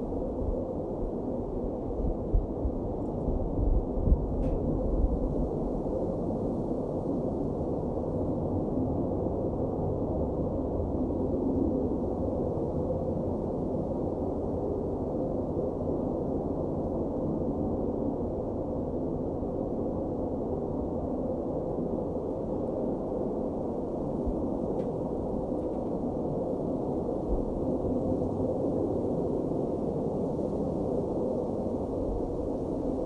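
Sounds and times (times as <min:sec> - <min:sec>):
low muffled rumble: 0:01.6 - 0:05.8.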